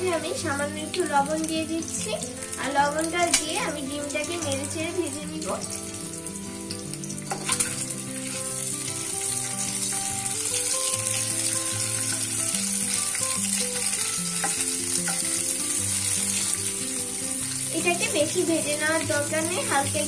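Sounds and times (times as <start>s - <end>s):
background music: 0.0s - 20.0s
eggs sizzling in hot oil: 0.0s - 20.0s
spoon clicking against pan: 3.3s - 3.6s.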